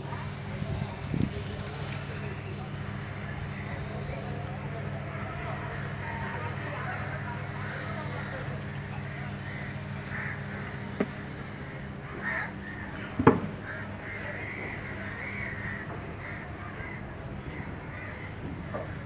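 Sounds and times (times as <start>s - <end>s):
low mechanical hum: 0.0s - 19.0s
crows cawing: 5.2s - 19.0s
sharp knocks: 13.2s - 13.6s.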